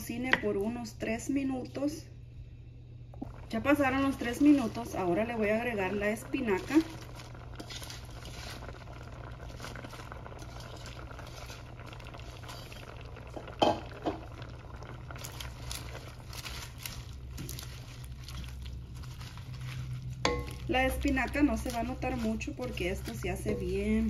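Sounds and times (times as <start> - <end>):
low hum: 0.0 - 24.0
sauce simmering and bubbling: 3.2 - 24.0
wooden spoon stirring: 3.2 - 24.0.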